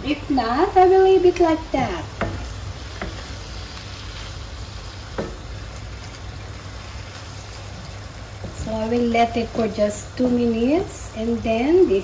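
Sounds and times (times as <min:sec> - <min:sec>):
stir-fry sizzling in a pan: 0:00.0 - 0:12.0
wooden spatula stirring: 0:01.4 - 0:09.7.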